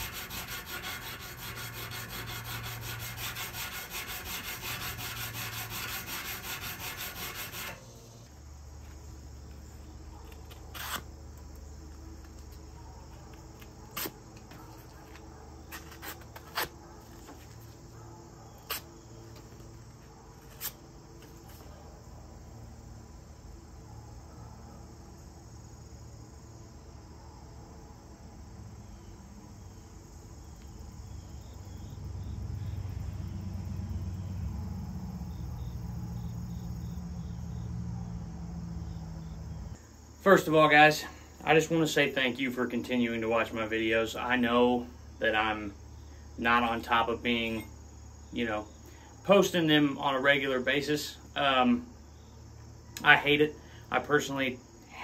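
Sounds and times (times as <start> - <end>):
hand file on steel: 0.0 - 7.8
crickets chirping: 0.0 - 55.0
knife blade slicing paper: 10.5 - 11.1.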